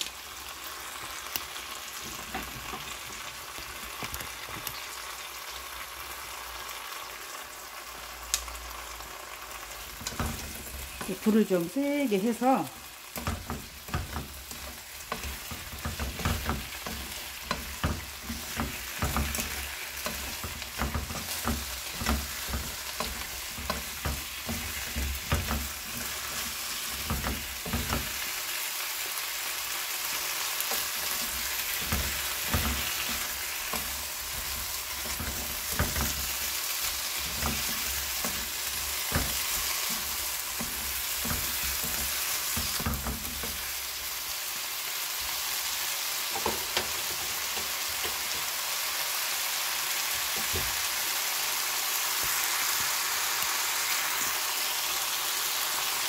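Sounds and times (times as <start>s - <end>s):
food sizzling in a frying pan: 0.0s - 56.0s
spatulas knocking and scraping pan: 2.0s - 3.3s, 9.8s - 28.4s, 30.6s - 44.0s, 46.3s - 48.5s, 50.3s - 50.8s.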